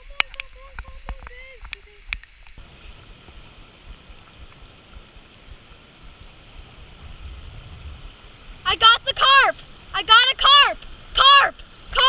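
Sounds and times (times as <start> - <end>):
stream water rushing: 0.0 - 12.0
low rumble: 2.6 - 10.0.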